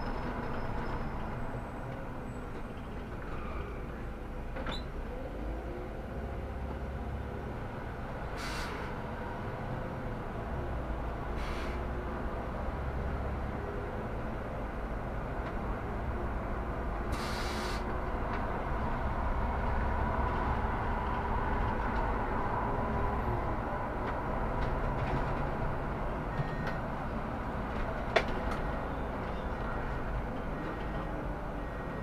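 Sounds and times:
bus engine and road rumble: 0.0 - 32.0
short hiss: 17.1 - 17.8.

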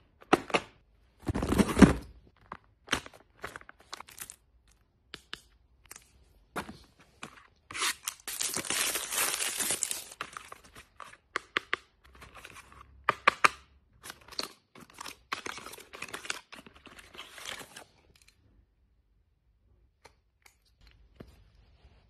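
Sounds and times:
wrapping crinkling tear: 7.8 - 10.2.

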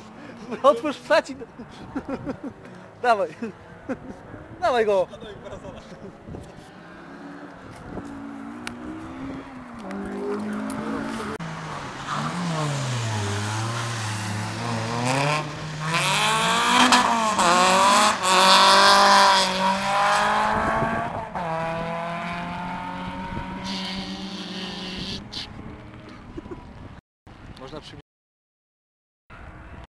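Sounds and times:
race car engine at full throttle: 5.6 - 26.9.

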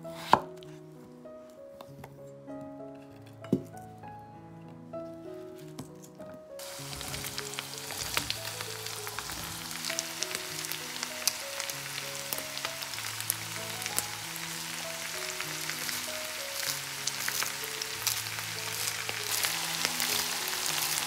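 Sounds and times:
soft background music: 0.0 - 21.0
vegetables sizzling in oil: 6.6 - 21.0.

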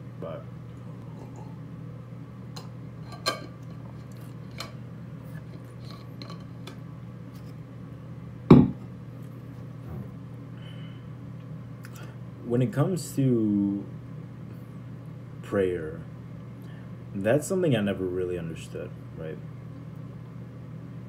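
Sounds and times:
bottle thump on hard surface: 8.5 - 8.8.

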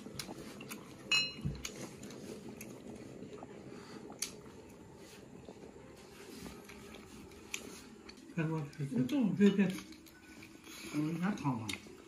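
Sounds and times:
dishes clinking: 1.1 - 1.4.

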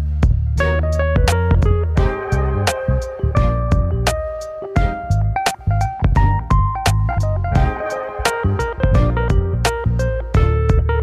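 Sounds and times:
held bass: 0.0 - 11.0
plucked guitar-like melody: 0.6 - 11.0
sharp drum hits: 1.2 - 9.8.

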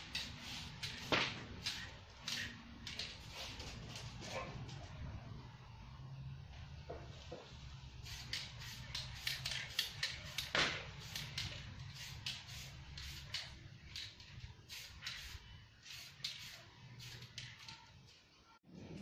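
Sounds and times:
spray can hissing: 0.0 - 3.6, 8.0 - 17.7.

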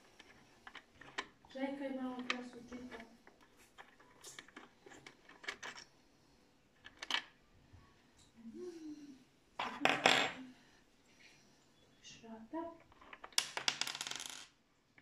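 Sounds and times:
plastic parts clicking and tapping: 2.1 - 5.8, 6.8 - 7.4.

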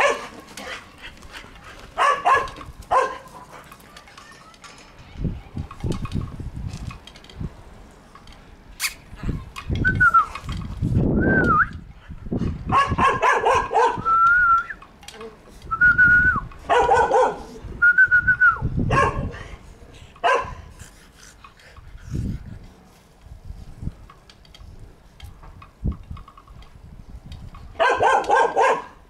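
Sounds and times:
puppies yapping barks: 2.0 - 3.5, 12.7 - 14.0, 16.7 - 17.5, 27.8 - 29.0.

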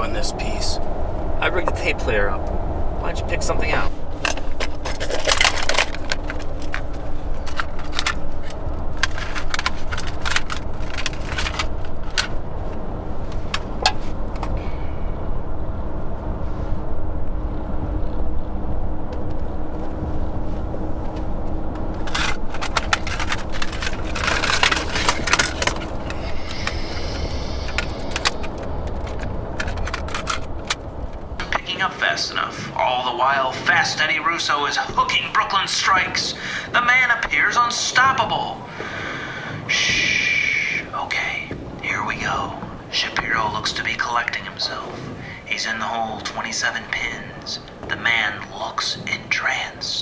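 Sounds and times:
car cabin road and engine rumble: 0.0 - 50.0
cassette tapes clattering: 4.1 - 14.6, 21.8 - 31.8.

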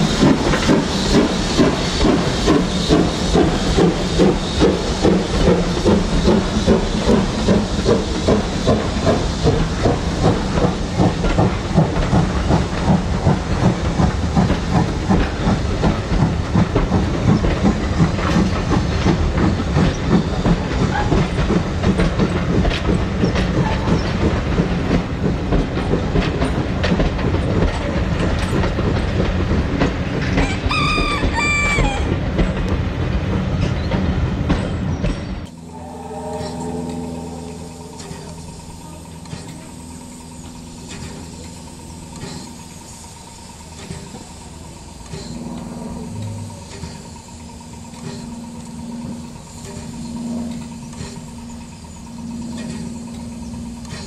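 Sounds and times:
steam train running past: 0.0 - 54.0
wheels clattering on rails: 0.0 - 54.0
high train whistle: 35.5 - 39.8.

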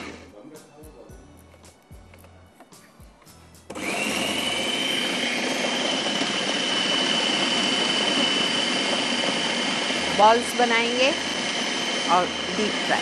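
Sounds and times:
food processor motor whining: 0.0 - 0.3, 3.7 - 13.0
blade grinding food: 3.7 - 13.0.

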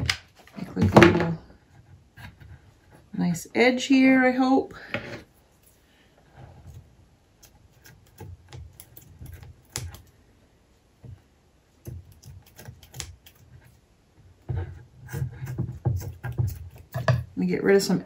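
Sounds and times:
scissors snipping fabric: 7.4 - 10.1, 11.8 - 13.4.

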